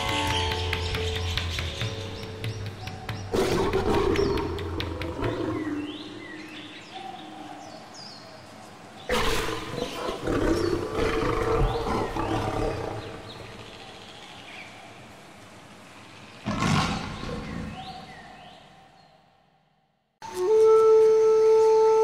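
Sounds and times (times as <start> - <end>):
small birds chirping: 0.0 - 19.7
howler monkeys roaring: 3.3 - 6.0, 9.1 - 14.0, 16.4 - 19.0.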